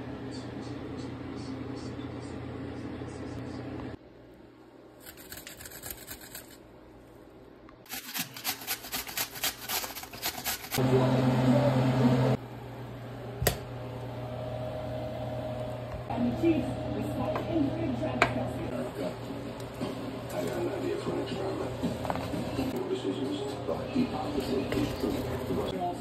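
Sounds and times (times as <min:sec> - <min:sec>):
grater rasping: 0:05.0 - 0:06.6, 0:07.9 - 0:10.8
loud steady hum: 0:10.8 - 0:26.0.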